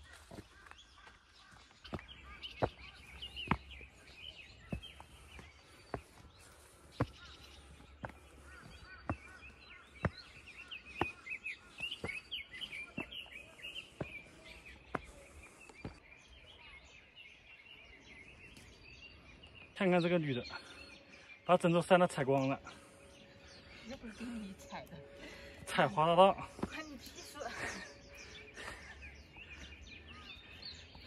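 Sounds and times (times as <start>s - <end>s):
footsteps on footpath: 0.0s - 16.2s, 21.9s - 31.0s
birds chirping: 0.0s - 31.0s.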